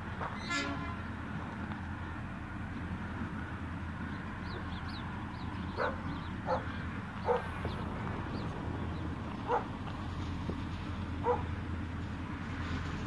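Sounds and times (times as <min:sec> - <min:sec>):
diesel locomotive rumble: 0:00.0 - 0:13.0
small birds chirping: 0:02.9 - 0:09.7
dog barking in the distance: 0:05.8 - 0:07.5, 0:09.4 - 0:09.7, 0:11.2 - 0:11.5.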